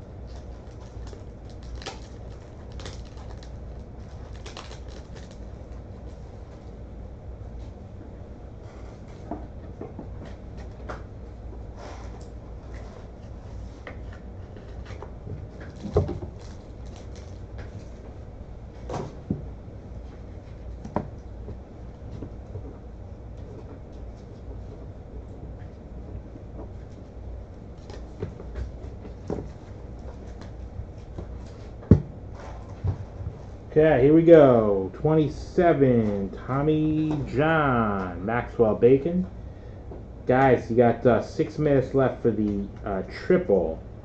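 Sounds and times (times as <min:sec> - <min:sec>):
low steady hum: 0:00.0 - 0:44.0
objects knocking on a desk: 0:31.8 - 0:32.1.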